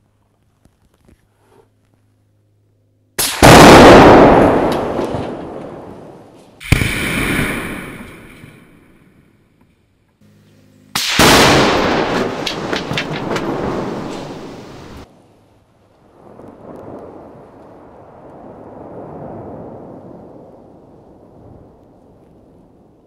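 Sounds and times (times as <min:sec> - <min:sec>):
rifle shot crack: 0:03.2 - 0:09.0, 0:11.0 - 0:14.6
explosion boom with rolling echo: 0:03.2 - 0:09.4, 0:11.0 - 0:15.1.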